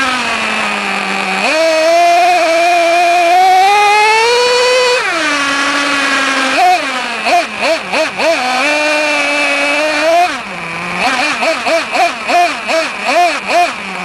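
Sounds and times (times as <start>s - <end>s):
nitro engine revving: 0.0s - 14.0s.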